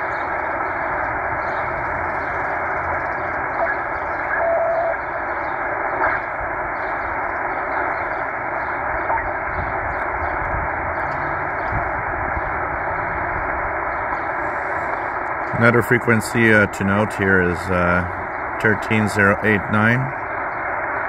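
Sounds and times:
radio static hiss: 0.0 - 21.0
radio carrier whistle: 3.5 - 5.1.

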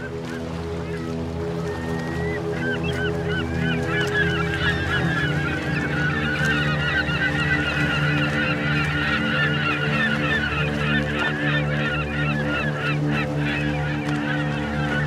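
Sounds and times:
low drone of held tones: 0.0 - 15.0
waterfowl flock honking: 0.0 - 15.0.

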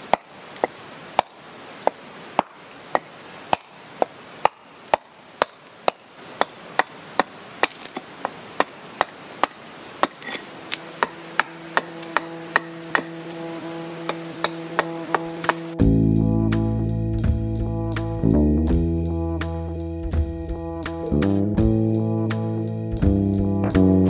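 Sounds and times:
hatchet chopping wood: 0.0 - 13.4, 14.0 - 15.8
held musical tone: 11.7 - 24.0.

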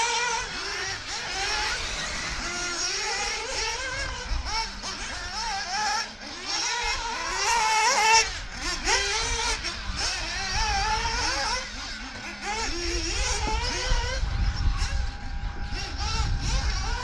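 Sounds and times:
remote control buggy motors: 0.0 - 17.0.

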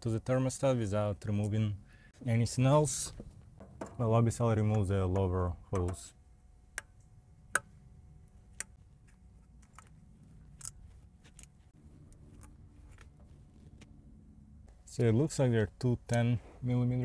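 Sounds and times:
hand tools clicking and tapping: 4.6 - 6.1.

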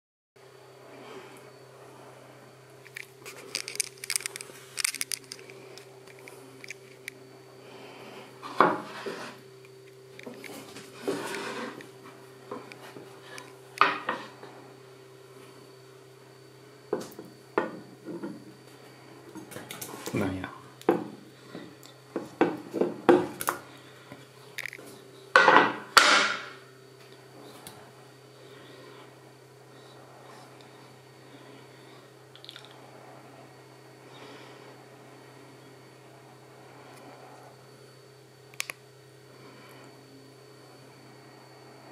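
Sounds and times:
steady hum: 0.4 - 41.9
clinks and scrapes of handling: 2.9 - 7.1, 8.4 - 11.9
board scraping on wooden counter: 8.4 - 9.4, 10.5 - 11.9.

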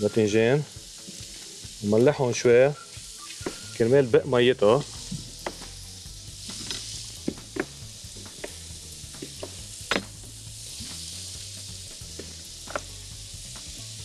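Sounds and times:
food sizzling in a pan: 0.0 - 14.0.

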